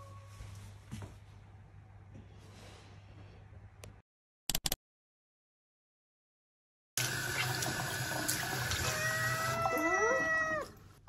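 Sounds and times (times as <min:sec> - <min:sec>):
running tap water: 0:07.0 - 0:10.8
cat meowing: 0:08.8 - 0:10.8.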